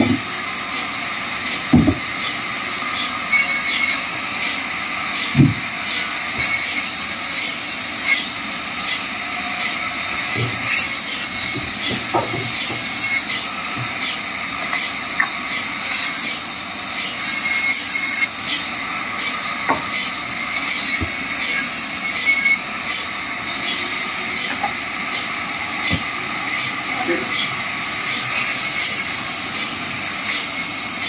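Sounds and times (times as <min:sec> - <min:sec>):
band saw cutting wood: 0:00.0 - 0:31.0.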